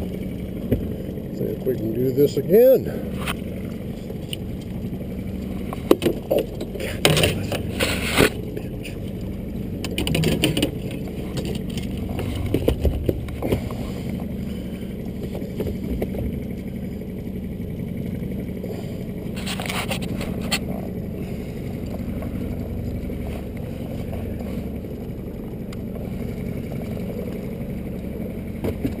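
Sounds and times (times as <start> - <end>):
boat motor running: 0.0 - 29.0
sharp knocks and scrapes: 5.7 - 8.4, 9.8 - 14.0, 19.3 - 20.8.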